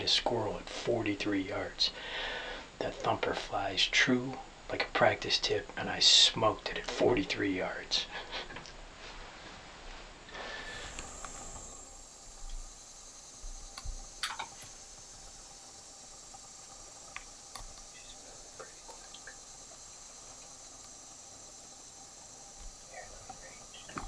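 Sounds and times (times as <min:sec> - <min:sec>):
high-pitched insect chorus: 0:10.4 - 0:24.0.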